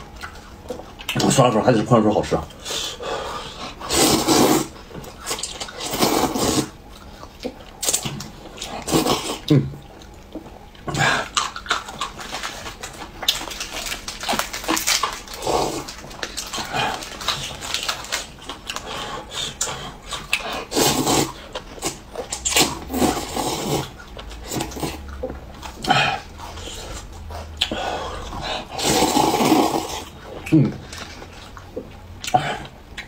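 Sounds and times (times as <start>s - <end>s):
noodles slurped: 3.8s - 6.8s, 7.8s - 9.5s, 10.9s - 30.2s
crunchy chewing of crackers: 3.9s - 33.0s.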